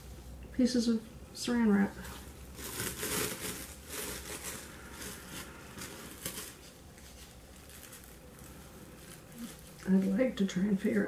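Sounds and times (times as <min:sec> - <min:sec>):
plastic wrap crinkling: 0:01.9 - 0:11.0.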